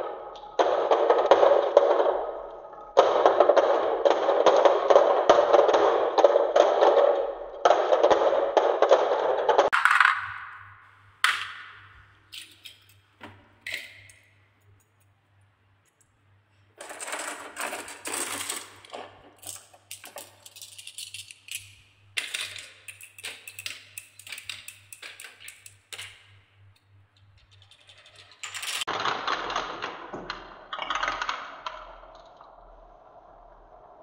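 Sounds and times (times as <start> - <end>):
glass marbles clicking on wooden track: 3.0 - 13.1, 13.7 - 14.3, 16.8 - 32.5
marbles rolling rattle on spiral: 16.8 - 26.2, 27.5 - 28.9.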